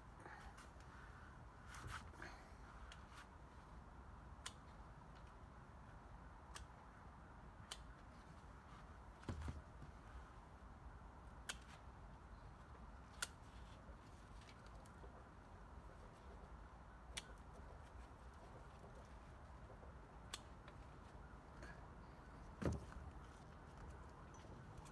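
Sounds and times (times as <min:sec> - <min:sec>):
snips clipping stems: 0:04.4 - 0:05.3, 0:06.4 - 0:07.0, 0:07.6 - 0:08.3, 0:11.4 - 0:11.9, 0:13.0 - 0:15.0, 0:17.0 - 0:19.0, 0:20.1 - 0:21.0.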